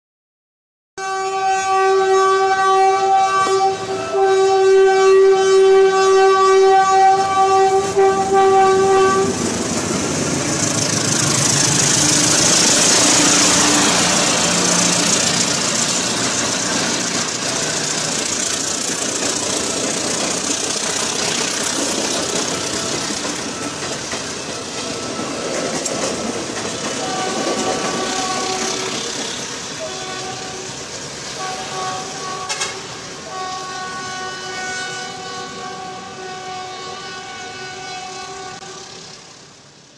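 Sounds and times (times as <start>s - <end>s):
train horn blasts: 1.0s - 9.5s, 10.4s - 17.4s, 27.0s - 39.1s
train wheel and rail noise: 1.0s - 39.9s.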